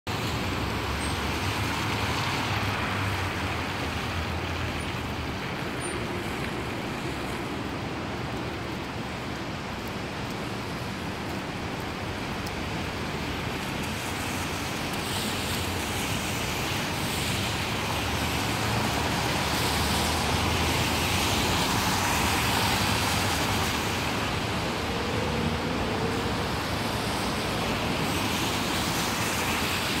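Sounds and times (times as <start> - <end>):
rain: 0.1 - 30.0
tyres hissing on wet road: 0.1 - 30.0
car engines passing: 17.0 - 30.0.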